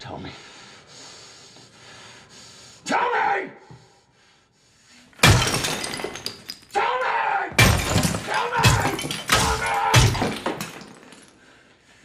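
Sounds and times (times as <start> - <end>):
man yelling: 2.9 - 3.6, 6.7 - 7.6, 8.2 - 10.4
hammer smashing sink: 5.2 - 6.6, 7.6 - 11.1.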